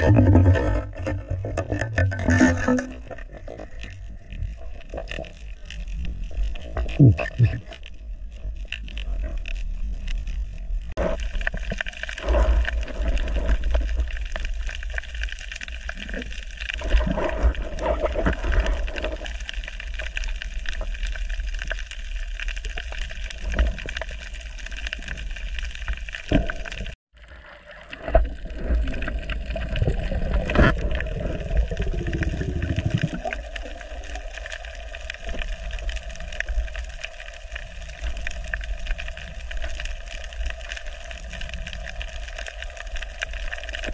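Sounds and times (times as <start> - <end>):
exhaled bubbles gurgling underwater: 0.0 - 43.9.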